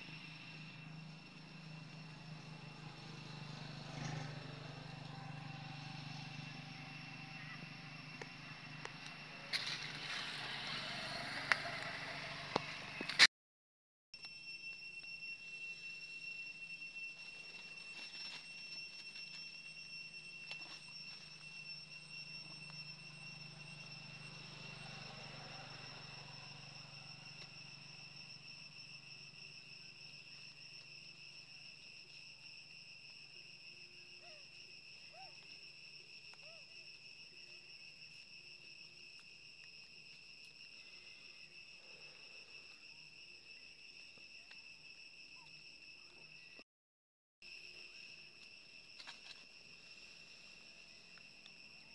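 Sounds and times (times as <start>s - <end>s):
high-pitched insect drone: 0.0s - 13.2s, 14.2s - 46.6s, 47.4s - 51.9s
low hum: 0.0s - 13.2s.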